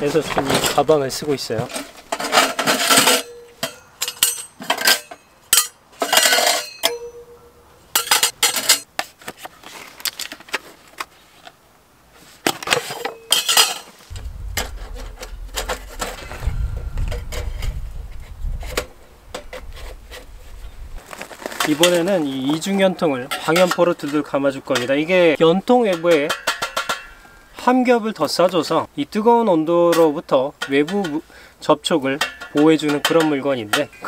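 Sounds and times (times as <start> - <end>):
metal pipes clinking and knocking: 2.1 - 7.4, 8.0 - 8.9, 25.9 - 27.3, 32.2 - 34.0
low rumble: 14.1 - 21.0.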